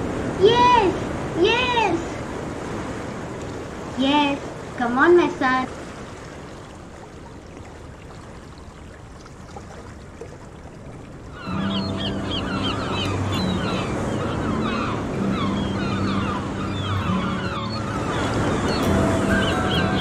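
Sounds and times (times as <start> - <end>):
waves rushing: 0.0 - 20.0
seagulls calling: 11.2 - 20.0.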